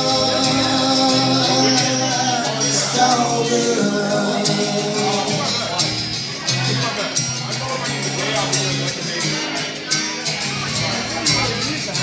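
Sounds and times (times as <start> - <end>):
person singing: 0.0 - 6.0
acoustic guitar strumming: 0.0 - 12.0.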